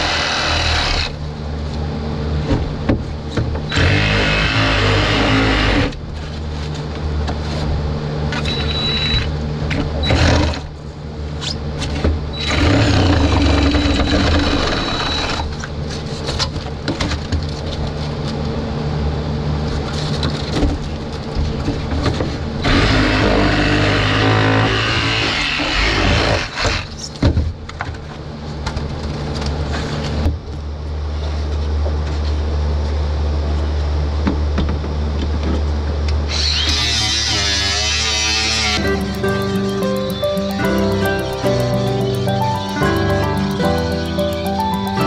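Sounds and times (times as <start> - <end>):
reciprocating saw cutting: 0.0 - 1.2, 3.7 - 5.9, 22.7 - 26.9, 36.3 - 38.8.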